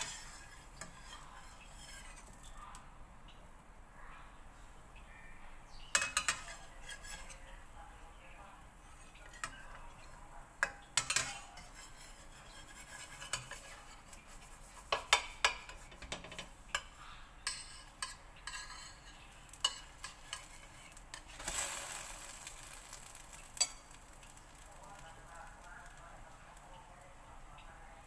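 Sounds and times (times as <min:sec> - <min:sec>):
metal turner scraping a pan: 0:00.0 - 0:02.6, 0:05.9 - 0:07.6, 0:08.8 - 0:26.8
batter sizzling: 0:00.0 - 0:02.9, 0:05.8 - 0:28.0.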